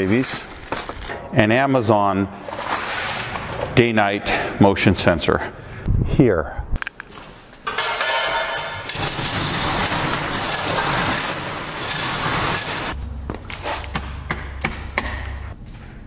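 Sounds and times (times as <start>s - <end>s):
hoist chain clattering: 7.7s - 13.0s
steel door slats rattling: 7.7s - 13.0s.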